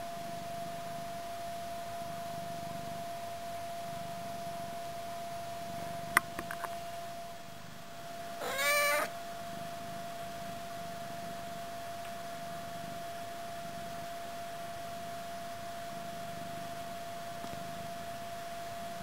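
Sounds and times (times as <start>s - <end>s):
faint high hum: 0.0s - 19.0s
cat meowing: 8.4s - 9.1s.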